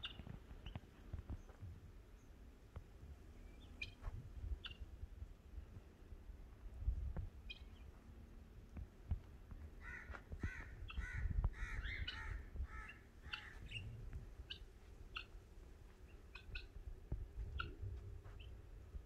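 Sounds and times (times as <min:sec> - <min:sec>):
small birds chirping: 0:00.0 - 0:04.9, 0:07.3 - 0:08.2, 0:09.7 - 0:18.7
harsh bird calls: 0:09.8 - 0:15.4.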